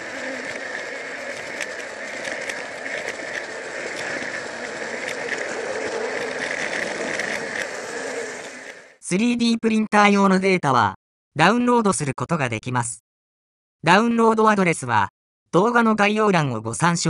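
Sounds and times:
small clicks: 0.0s - 8.9s
toy train motor whirring: 0.0s - 9.0s.

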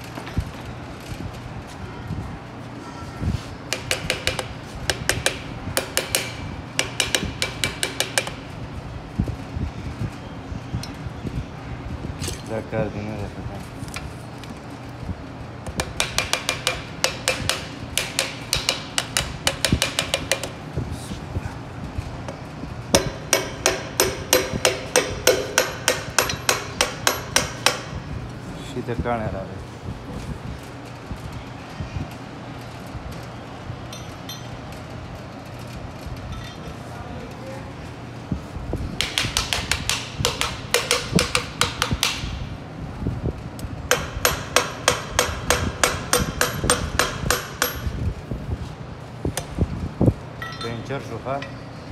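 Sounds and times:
hammer handle tapping metal: 3.7s - 8.4s, 23.0s - 27.9s, 39.0s - 42.3s
sharp metallic taps: 39.0s - 42.3s.

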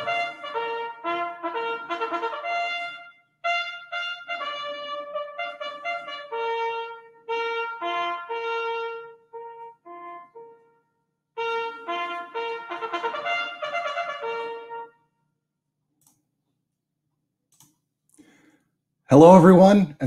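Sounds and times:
trumpet melody: 0.0s - 15.3s.

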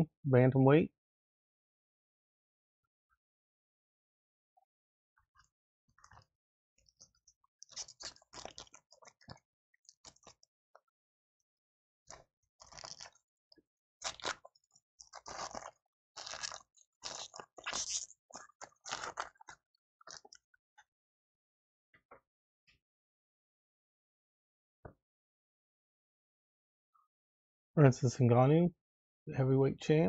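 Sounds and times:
foil wrapper crinkling and tearing: 7.7s - 8.8s, 12.6s - 13.2s, 14.0s - 20.3s.

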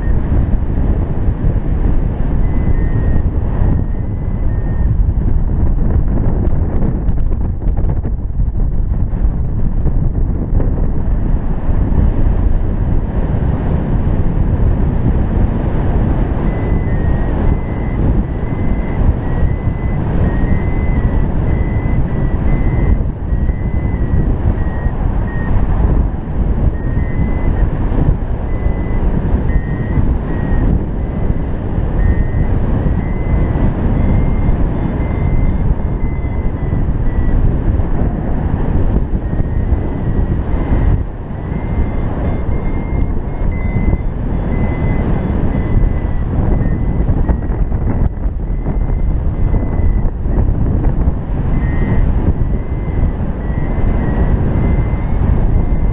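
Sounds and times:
wind rumble on microphone: 0.0s - 55.9s
short high beeps: 2.4s - 4.9s, 16.4s - 25.6s, 26.7s - 27.7s, 28.5s - 37.4s, 39.2s - 50.1s, 51.5s - 55.9s.

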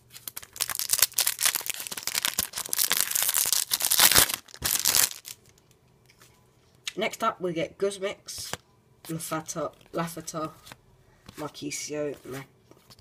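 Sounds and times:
foil wrapper tearing and crinkling: 0.1s - 5.6s.

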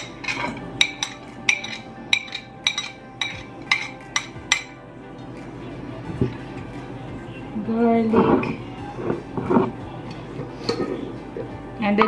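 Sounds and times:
spoon clinking on metal bowl: 0.0s - 4.8s.

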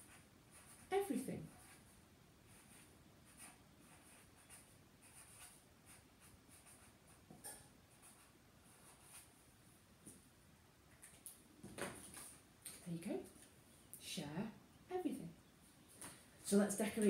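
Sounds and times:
faint marker writing on paper: 0.0s - 7.3s, 7.9s - 9.4s.

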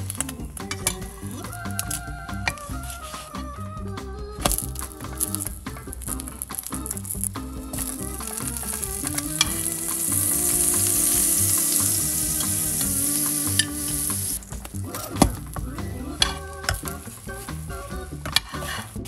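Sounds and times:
butter sizzling in frying pan: 5.2s - 15.8s
wooden spatula scraping pan: 18.3s - 19.0s.

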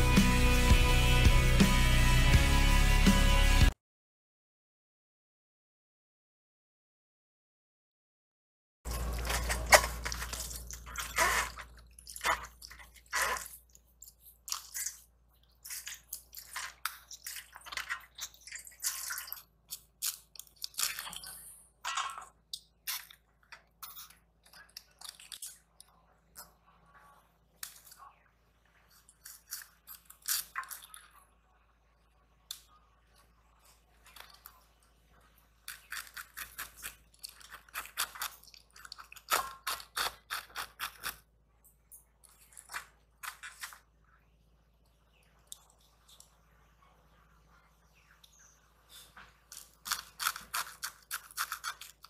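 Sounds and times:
cabbage leaves crunching and snapping: 8.9s - 13.5s.

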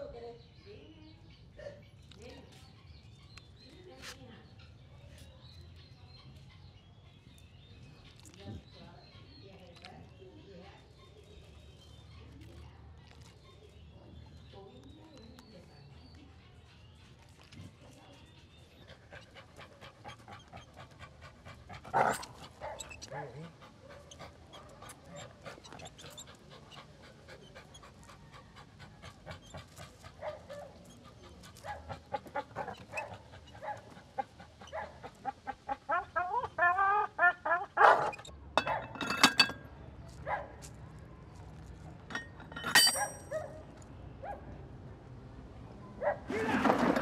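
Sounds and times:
dog panting hard: 18.5s - 35.8s.

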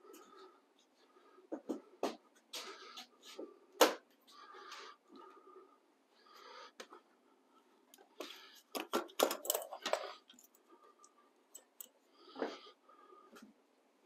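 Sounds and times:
tools and parts clattering: 8.6s - 10.6s.

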